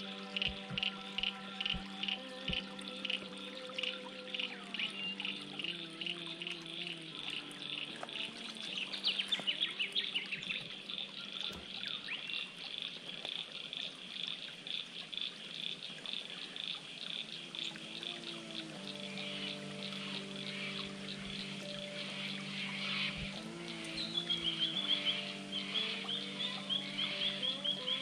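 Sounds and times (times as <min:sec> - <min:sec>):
creek trickling over rocks: 0:00.0 - 0:28.0
bird chirps: 0:17.7 - 0:28.0.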